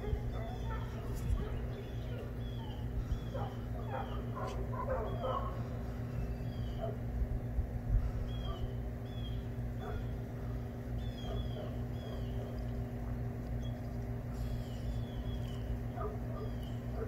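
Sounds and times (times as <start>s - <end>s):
dogs yipping and whining: 0.0s - 7.0s, 8.3s - 10.2s, 11.0s - 12.8s, 13.5s - 17.0s
steady low rumble: 0.0s - 17.0s.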